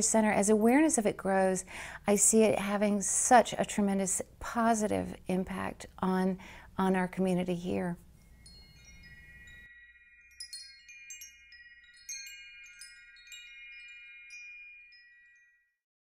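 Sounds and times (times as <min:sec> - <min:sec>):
tinkling chimes: 0:08.1 - 0:15.8.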